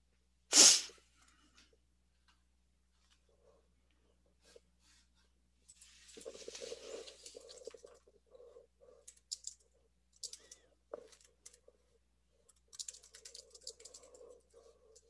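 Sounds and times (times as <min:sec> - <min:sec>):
typing on computer keyboard: 0:10.2 - 0:11.6, 0:12.4 - 0:15.0.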